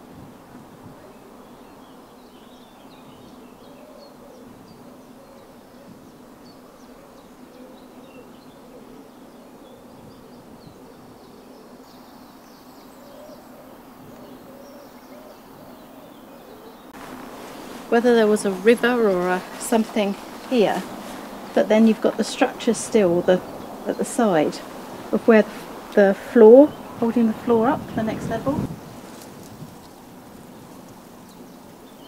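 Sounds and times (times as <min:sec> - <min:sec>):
faint bird chirps: 0:00.9 - 0:17.0
steady low buzz: 0:17.0 - 0:31.2.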